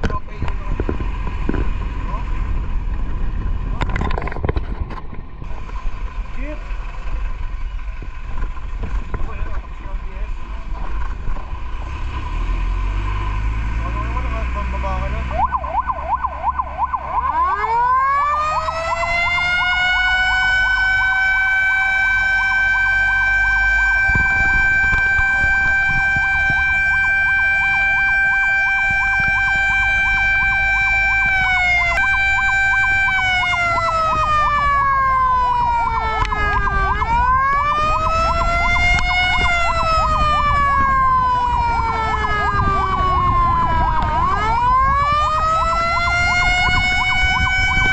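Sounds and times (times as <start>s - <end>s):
low engine rumble: 0.0s - 47.9s
wailing siren: 12.8s - 47.9s
fast yelping siren: 15.3s - 47.9s.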